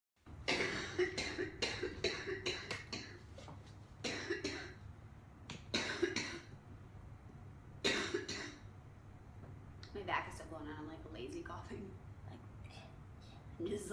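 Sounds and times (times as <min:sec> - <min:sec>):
woman coughing: 0:00.5 - 0:03.2, 0:04.1 - 0:04.8, 0:05.8 - 0:06.5, 0:07.9 - 0:08.6.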